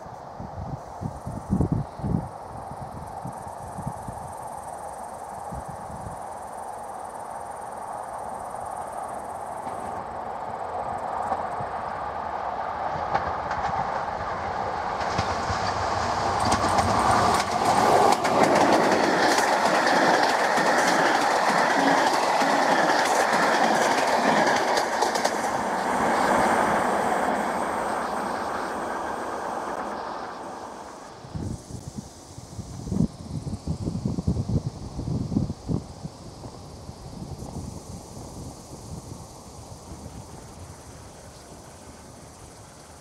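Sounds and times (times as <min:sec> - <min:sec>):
train rumble: 0:00.0 - 0:43.0
wheels clattering over rail joints: 0:14.9 - 0:31.1.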